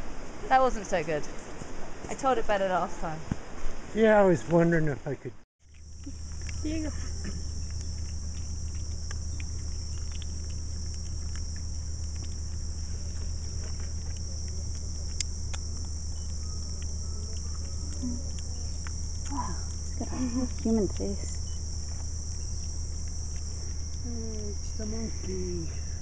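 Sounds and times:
low steady hum: 0.0s - 26.0s
high-pitched insect drone: 5.6s - 26.0s.

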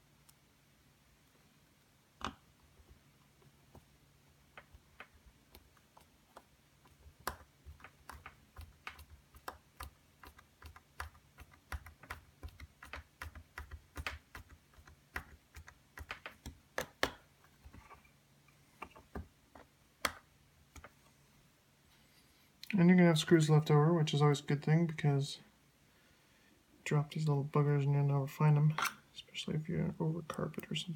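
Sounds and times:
plastic parts clicking and tapping: 4.5s - 18.0s.

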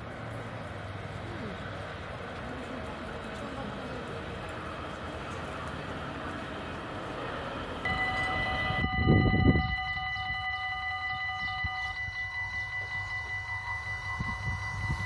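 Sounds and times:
outdoor rushing noise: 0.0s - 15.0s
level crossing warning bell: 7.8s - 15.0s
loud low rumble: 7.9s - 15.0s.

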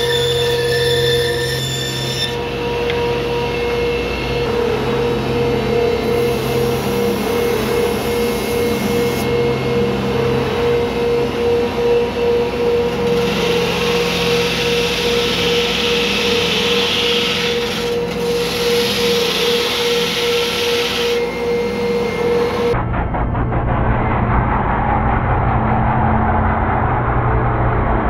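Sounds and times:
power tool humming: 0.0s - 22.8s.

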